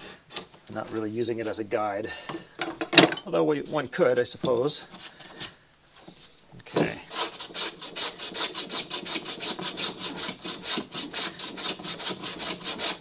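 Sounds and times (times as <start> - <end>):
hand plane strokes on wood: 7.1 - 13.0.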